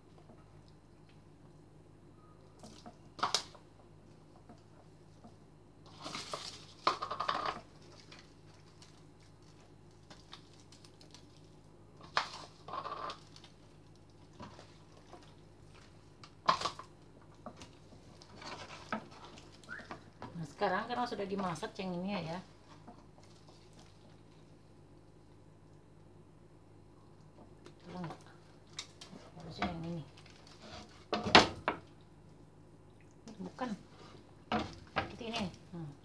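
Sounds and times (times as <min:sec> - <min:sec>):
faint steady hum: 0:00.0 - 0:36.0.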